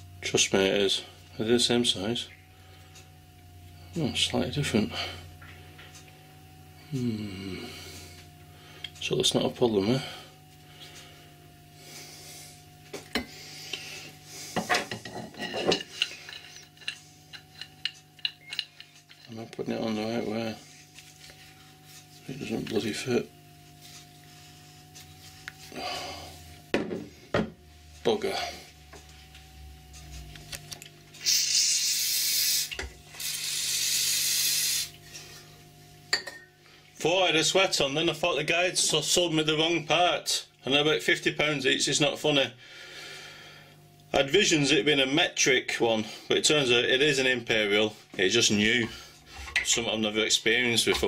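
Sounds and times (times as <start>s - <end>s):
aerosol spray can hissing: 31.2s - 35.0s.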